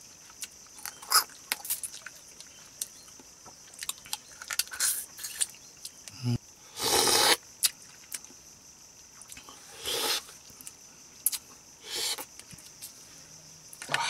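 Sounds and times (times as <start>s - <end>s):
loud slurp: 6.8s - 7.4s, 9.8s - 10.3s.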